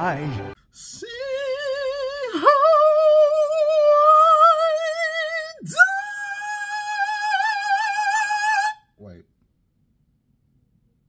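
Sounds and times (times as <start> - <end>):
man singing high held notes: 0.0 - 8.8.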